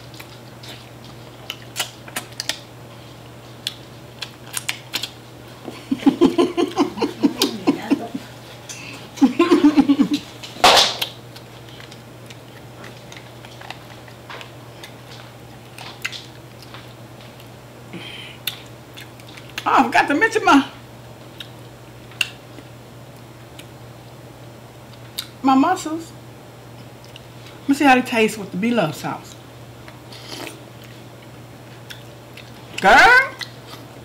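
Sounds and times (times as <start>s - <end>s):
low electrical hum: 0.0s - 34.0s.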